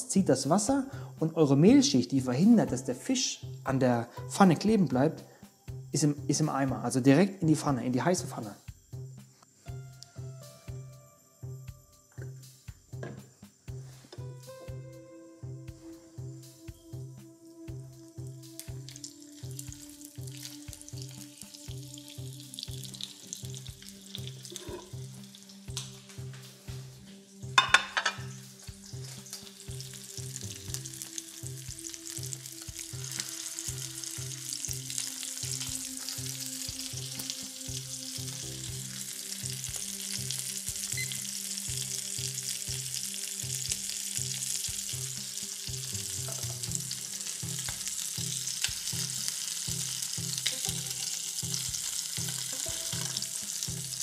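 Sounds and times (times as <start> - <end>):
fish fillets sizzling in a pan: 18.1 - 54.0.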